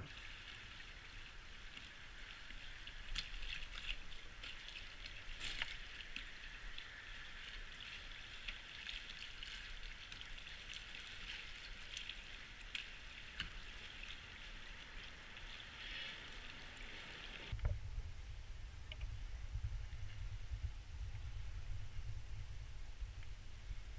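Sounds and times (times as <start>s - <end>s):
small waves lapping against hull: 0.0s - 17.9s
low rumble: 17.5s - 23.9s.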